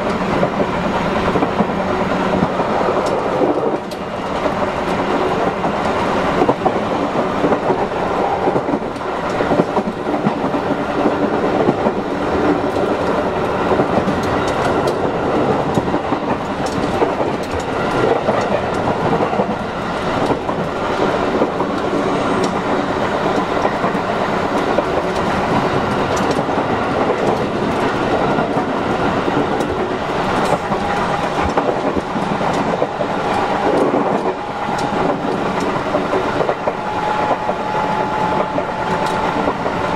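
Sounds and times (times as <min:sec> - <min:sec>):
train wheels rumbling on rails: 0:00.0 - 0:39.9
track clicks: 0:11.0 - 0:39.9.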